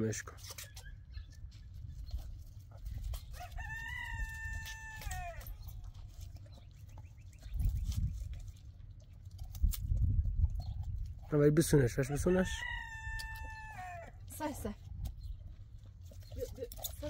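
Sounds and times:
rooster crowing: 3.4 - 5.5, 12.1 - 14.2.

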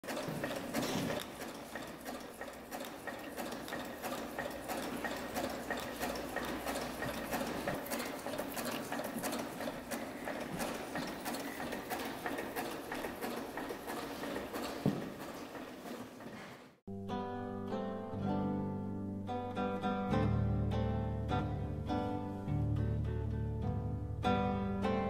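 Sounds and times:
sewing machine needle ticking: 0.0 - 16.0
sewing machine hum: 0.0 - 16.8.

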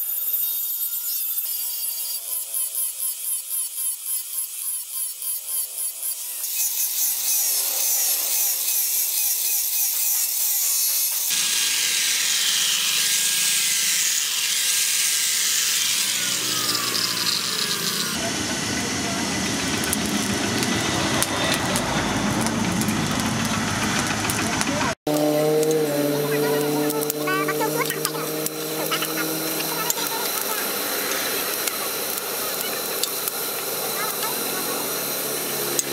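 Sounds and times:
angle grinder grinding metal: 0.0 - 35.9
high-pitched grinding: 0.0 - 35.9.

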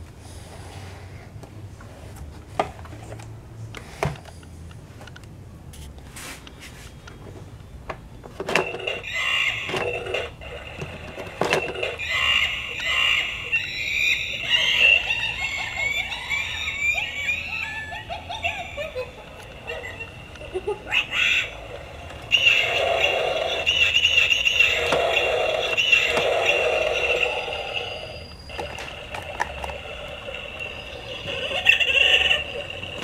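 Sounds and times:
electronic toy sound effects: 8.5 - 33.0.

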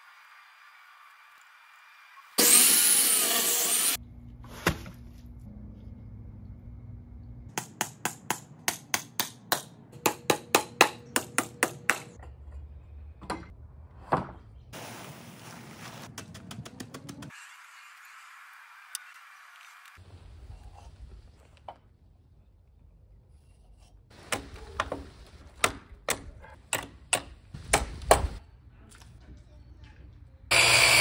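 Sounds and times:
power tool cutting wood: 2.4 - 4.0, 30.5 - 31.0.

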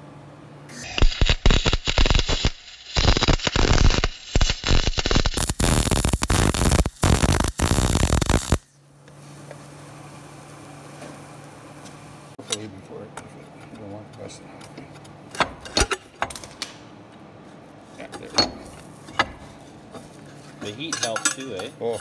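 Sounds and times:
welder arc crackling: 0.7 - 8.8.

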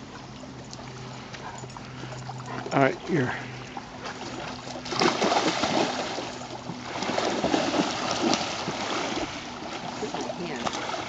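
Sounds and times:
dog swimming splashing water: 0.0 - 11.0.

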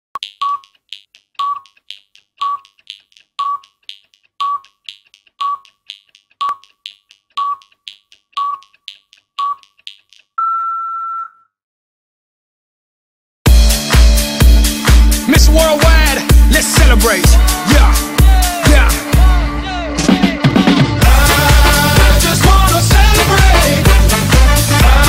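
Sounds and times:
countdown beeps with clicks: 0.2 - 11.3
long higher beep: 10.4 - 11.5.

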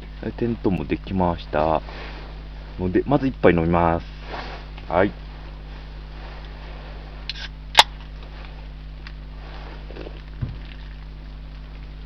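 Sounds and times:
drink can opening: 7.3 - 8.0.

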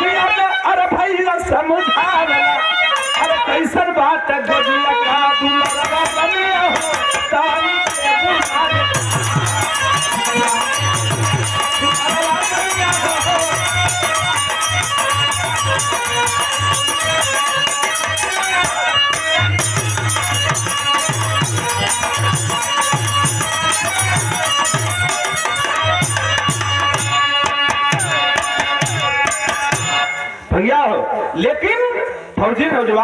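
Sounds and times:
folk melody: 1.6 - 30.7
jingling percussion: 2.8 - 3.8, 4.5 - 30.5
low hand drum beats: 7.9 - 18.3, 19.6 - 30.0.

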